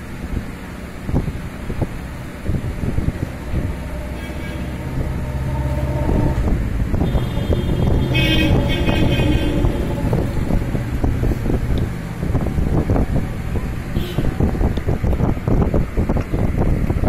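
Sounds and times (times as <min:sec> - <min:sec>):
vehicle engine running: 0:00.0 - 0:17.0
vehicle horn: 0:01.5 - 0:12.8, 0:13.9 - 0:14.6.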